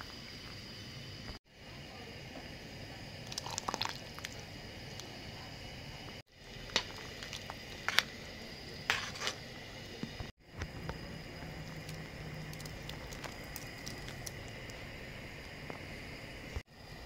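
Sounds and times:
soup simmering in a pot: 0:01.5 - 0:17.0.

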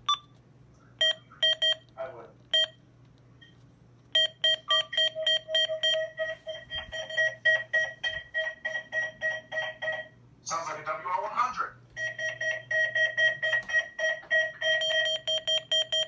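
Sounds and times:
electronic key beeps: 0:00.0 - 0:00.3, 0:01.0 - 0:01.9, 0:02.5 - 0:02.8, 0:04.2 - 0:10.1.

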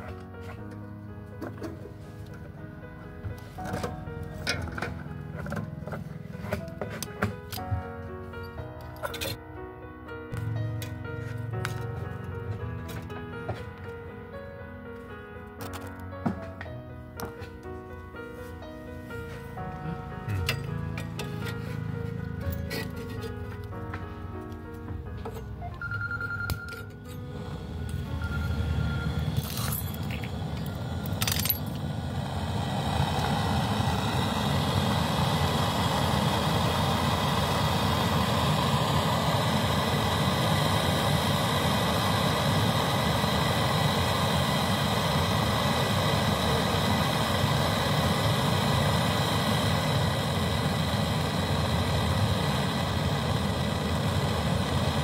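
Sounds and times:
torch flame hissing: 0:31.8 - 0:55.0.

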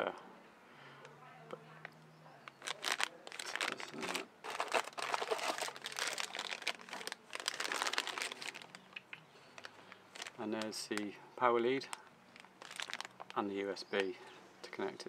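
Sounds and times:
plastic bags crinkling: 0:02.5 - 0:08.9, 0:09.5 - 0:11.1, 0:11.8 - 0:13.5.

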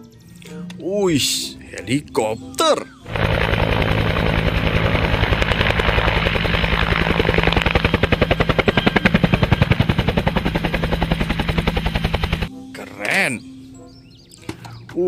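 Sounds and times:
helicopter engine hum: 0:03.0 - 0:12.5
helicopter rotor beating: 0:03.0 - 0:12.5.

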